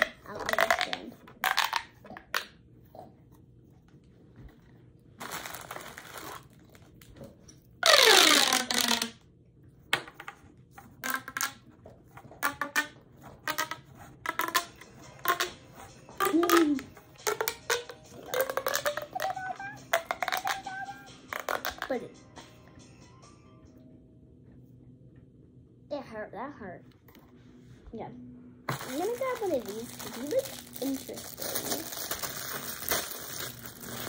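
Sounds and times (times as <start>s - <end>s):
plastic pop tubes popping: 0.0s - 2.6s, 7.8s - 9.2s, 11.0s - 11.6s, 12.3s - 22.0s, 28.7s - 34.0s.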